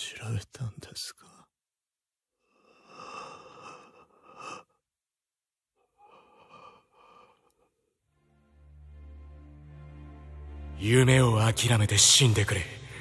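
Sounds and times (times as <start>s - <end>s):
man breathing laboriously: 2.3s - 8.1s.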